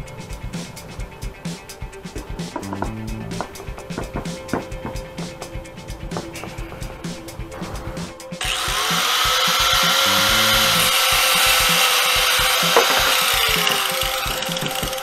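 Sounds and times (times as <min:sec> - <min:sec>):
background music with steady beat: 0:00.0 - 0:15.0
power tool cutting plastic pipe: 0:08.4 - 0:15.0.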